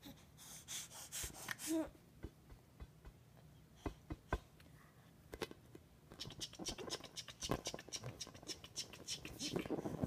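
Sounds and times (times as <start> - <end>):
soft taps on balloon: 2.2 - 4.6.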